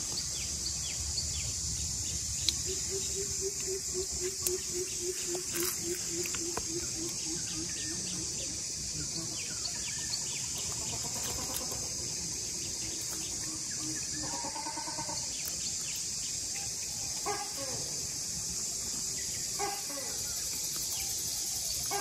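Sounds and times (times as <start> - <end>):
high-pitched insect drone: 0.0 - 22.0
bird calling: 2.4 - 8.6, 19.5 - 22.0.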